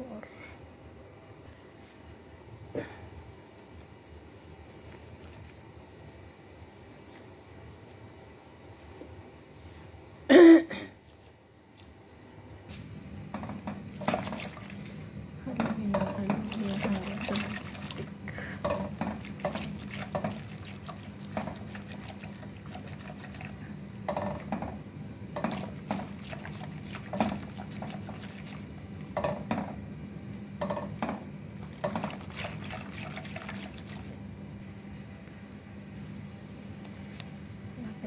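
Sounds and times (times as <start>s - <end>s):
steady low hum: 0.0s - 38.0s
batter sloshing in a bowl: 4.5s - 6.1s, 13.4s - 24.7s, 25.4s - 28.9s, 31.6s - 34.2s
whisk clicking against bowl: 18.7s - 23.5s.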